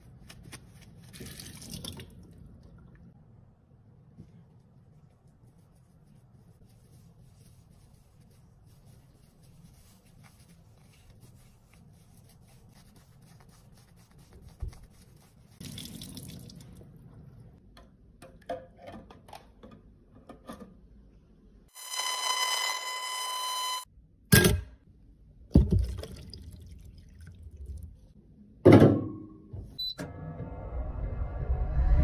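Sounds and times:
wet sponge squelching: 5.2 - 16.8.

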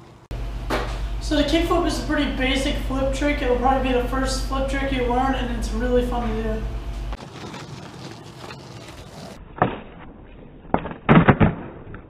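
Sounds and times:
skateboard tail clacks: 7.2 - 9.4
skateboard wheels rolling: 7.2 - 9.4.

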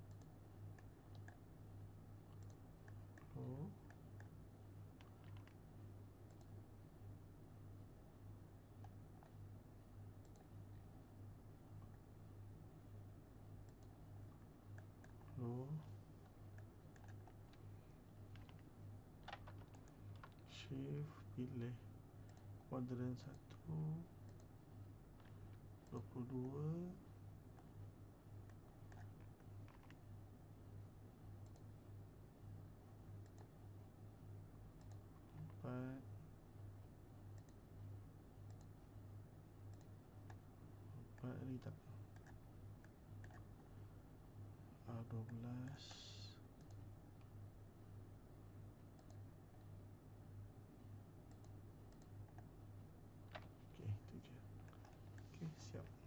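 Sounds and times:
mouse and keyboard clicks: 0.0 - 1.4, 5.0 - 5.6, 16.2 - 17.7, 18.3 - 20.5, 28.4 - 30.0, 42.1 - 43.5, 53.3 - 53.6, 54.6 - 55.3
computer mouse clicks: 0.0 - 1.5, 2.2 - 5.6, 6.2 - 6.6, 8.8 - 9.4, 10.1 - 11.0, 13.6 - 20.6, 22.2 - 24.6, 25.2 - 26.8, 28.4 - 30.1, 31.4 - 31.8, 33.2 - 33.6, 34.7 - 35.6, 37.3 - 37.7, 38.4 - 38.8, 39.7 - 40.5, 42.1 - 43.7, 46.6 - 47.4, 48.9 - 49.8, 51.3 - 52.5, 54.6 - 55.9
low electrical hum: 0.0 - 56.0.

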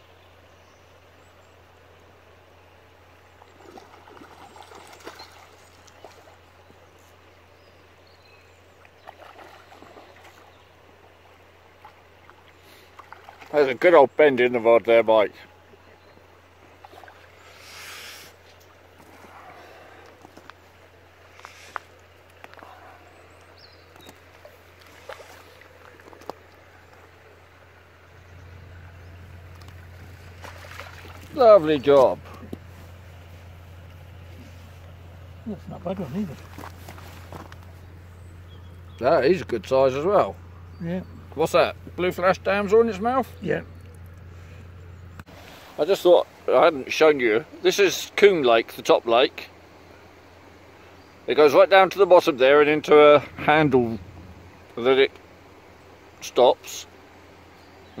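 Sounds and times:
low steady rumble: 0.0 - 58.0
fish splashing and thrashing: 3.4 - 6.7, 8.8 - 13.6, 16.8 - 17.6, 23.9 - 27.8, 28.5 - 35.4.

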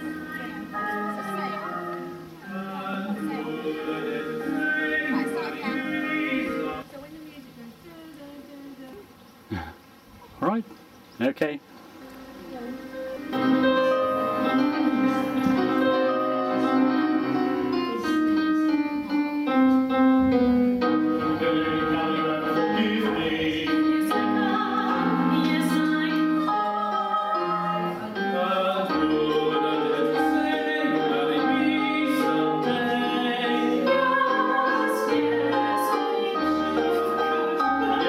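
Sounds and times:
group singing in parts: 0.0 - 6.8, 13.1 - 17.6, 21.0 - 38.0
piano accompaniment: 0.0 - 6.9, 12.0 - 38.0.

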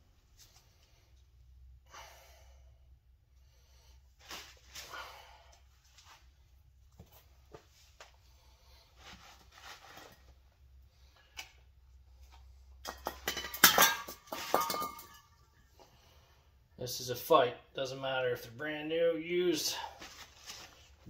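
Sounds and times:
faint handling sounds: 5.6 - 12.7, 19.6 - 21.0
metal knocking and clinking: 12.8 - 15.4.

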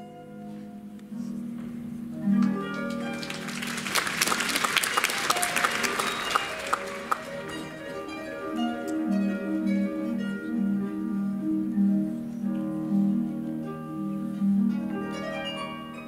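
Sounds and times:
ballet music with harp: 0.0 - 16.0
audience applause: 2.7 - 8.3.

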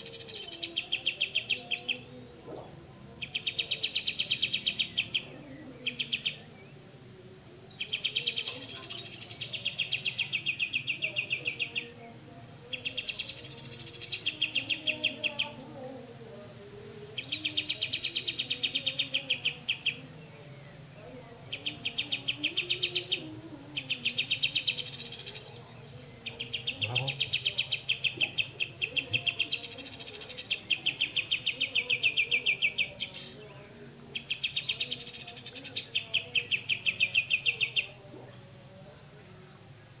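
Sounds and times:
thin steady high tone: 0.0 - 40.0
bird buzzy trill: 26.3 - 33.4.

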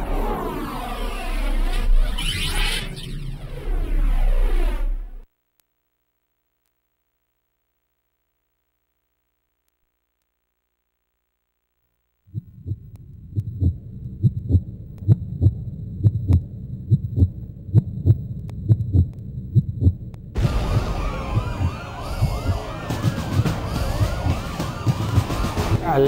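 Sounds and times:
low hum: 0.0 - 26.0
heartbeat thumping: 12.3 - 26.0
ambulance siren wailing: 20.4 - 25.8.

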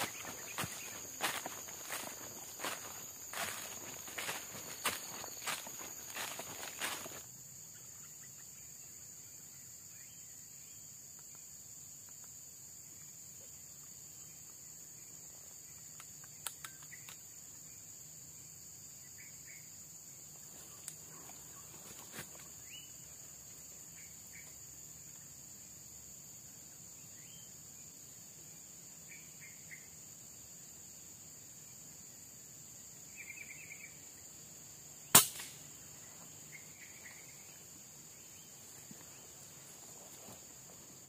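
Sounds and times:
high-pitched insect drone: 0.0 - 10.8
small sharp clicks: 15.9 - 17.2.

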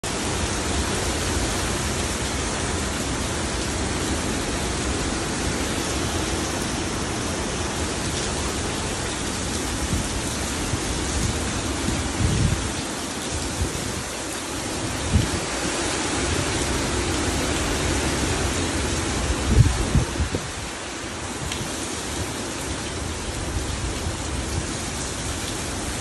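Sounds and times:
heavy rain: 0.0 - 26.0
hurricane wind: 0.0 - 26.0
wind gust buffeting microphone: 4.0 - 12.8, 14.9 - 16.8, 19.0 - 20.7.

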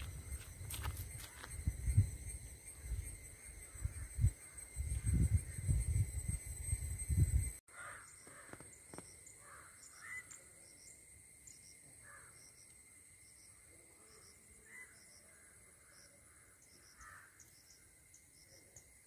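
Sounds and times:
insect drone: 0.0 - 19.0
faint bird calls: 7.7 - 10.7, 14.1 - 17.8.

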